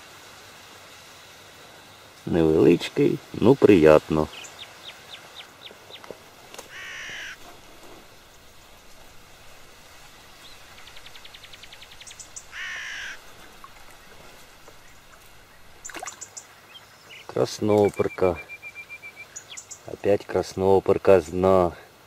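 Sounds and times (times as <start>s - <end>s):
crow cawing: 6.6s - 7.5s, 12.5s - 13.2s.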